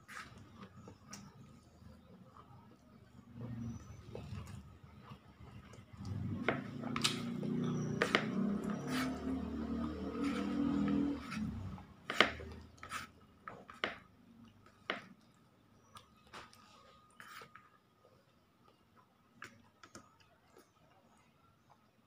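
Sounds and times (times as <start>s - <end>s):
chewing and mouth sounds: 0.0s - 12.8s.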